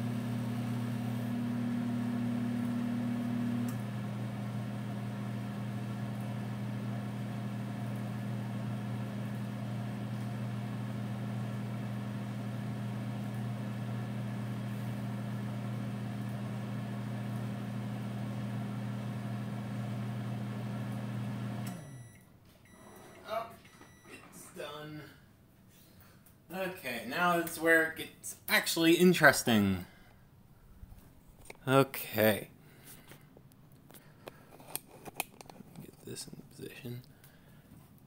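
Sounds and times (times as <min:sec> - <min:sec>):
microwave oven humming: 0:00.0 - 0:24.7.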